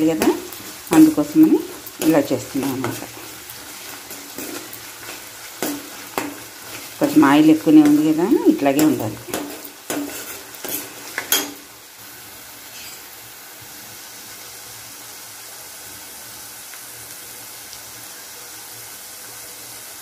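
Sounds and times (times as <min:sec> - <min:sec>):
steel spoon scraping a pan: 0:00.0 - 0:11.7, 0:12.7 - 0:13.1
onions sizzling in oil: 0:00.0 - 0:20.0.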